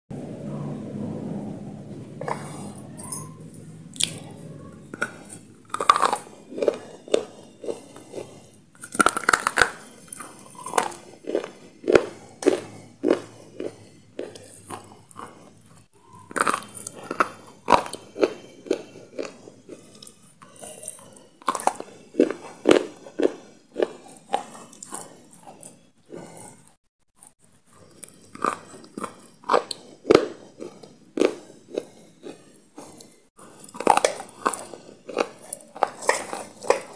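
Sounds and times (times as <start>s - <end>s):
loud crunchy chewing: 2.2s - 36.9s
person biting hard stick: 5.0s - 15.5s.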